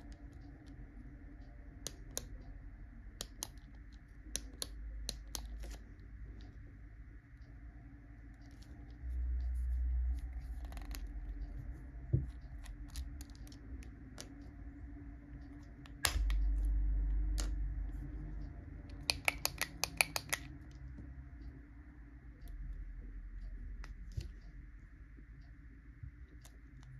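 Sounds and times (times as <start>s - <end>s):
low rumble: 5.7s - 19.0s
plastic pen clicks: 18.9s - 20.5s.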